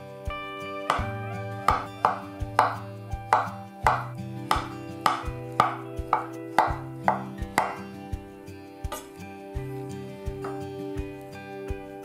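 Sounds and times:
background music: 0.0s - 12.0s
knife chopping on wooden board: 0.8s - 8.0s, 8.9s - 9.2s.

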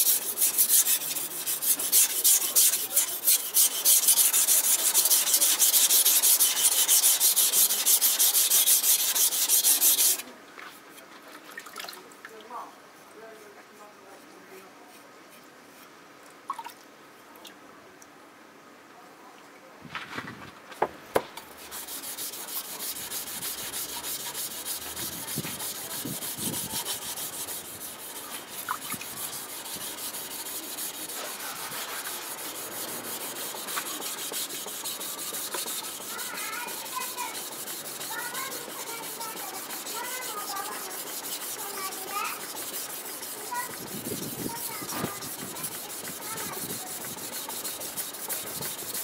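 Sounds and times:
knife rubbing on whetstone: 0.0s - 10.2s, 21.5s - 49.0s.

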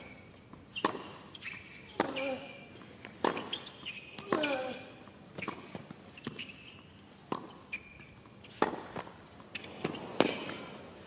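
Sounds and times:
shoes squeaking on court: 0.0s - 11.0s
racket striking tennis ball: 0.8s - 1.3s, 2.0s - 4.8s, 8.5s - 10.7s.

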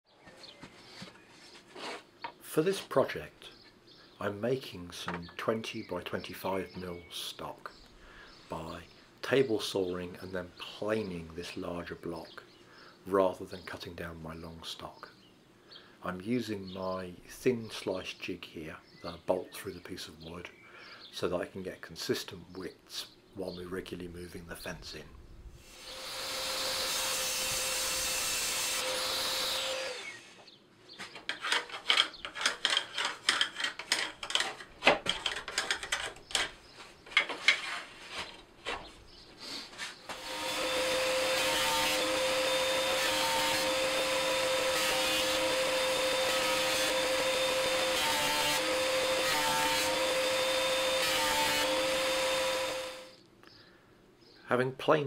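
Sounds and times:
table saw cutting wood: 25.6s - 30.5s, 40.1s - 53.2s.

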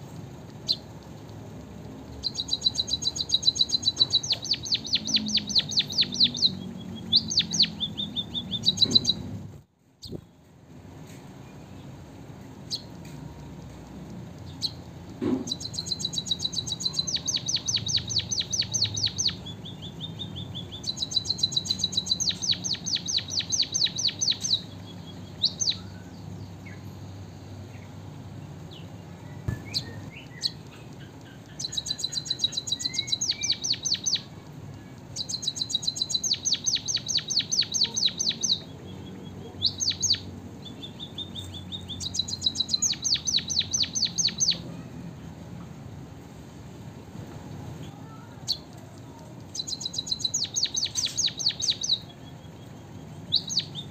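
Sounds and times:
bird singing rattling trills: 0.5s - 1.4s, 2.0s - 9.4s, 14.4s - 28.0s, 28.6s - 44.7s, 49.4s - 53.9s.

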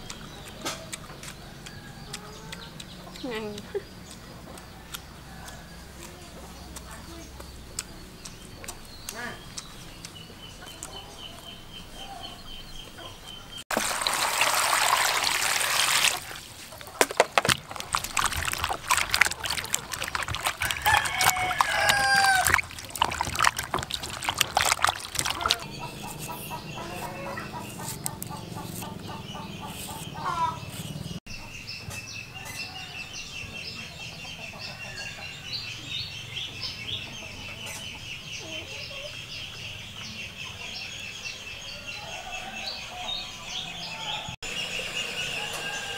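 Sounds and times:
chickens clucking: 0.0s - 13.6s, 16.0s - 35.4s, 36.4s - 40.8s
hands swishing in water: 13.7s - 27.2s
water splashing: 13.7s - 29.2s.

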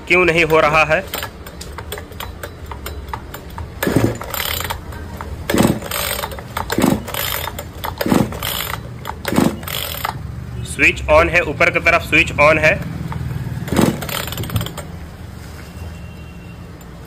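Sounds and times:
chainsaw recoil starter whirring: 0.4s - 10.4s, 12.6s - 15.0s.

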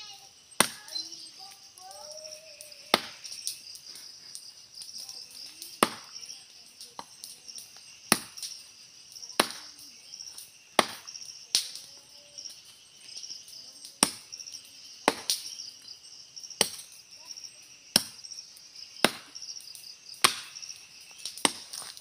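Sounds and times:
insects droning: 0.0s - 22.0s
machete chopping tree trunk: 2.9s - 3.2s, 5.8s - 6.1s, 8.1s - 8.4s, 9.4s - 9.6s, 10.8s - 11.1s, 15.0s - 15.4s, 19.0s - 19.3s, 20.2s - 20.6s, 21.4s - 21.9s.

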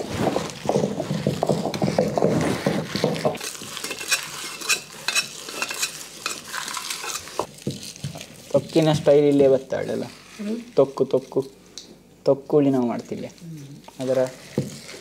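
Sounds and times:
stone pestle crushing spices: 0.0s - 8.9s.

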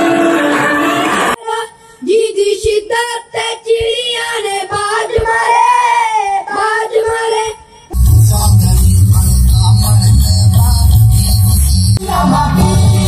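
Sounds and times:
child singing unaccompanied: 1.4s - 7.7s
recorded music with heavy bass beat: 7.9s - 13.0s.

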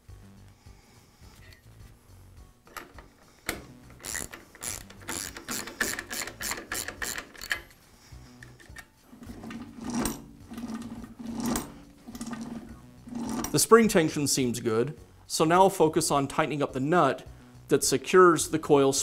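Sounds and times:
drill press mechanism clicking: 2.7s - 7.7s
drill press quill rattling: 2.7s - 7.7s, 9.2s - 13.6s.

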